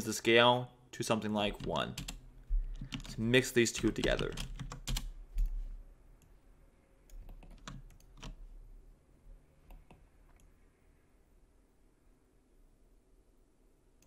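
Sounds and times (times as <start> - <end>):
keyboard clicks: 1.5 - 3.2, 3.8 - 5.6, 7.1 - 8.4.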